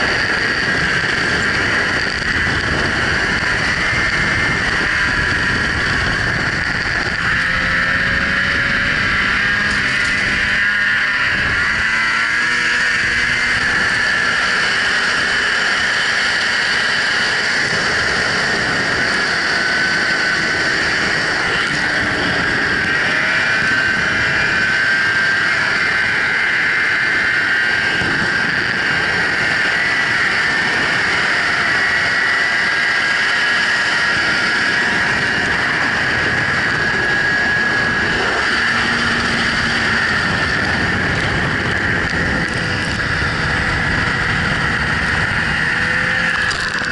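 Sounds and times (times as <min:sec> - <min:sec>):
rush of wind while riding: 0:00.0 - 0:46.9
snowmobile engine whine: 0:00.0 - 0:46.9.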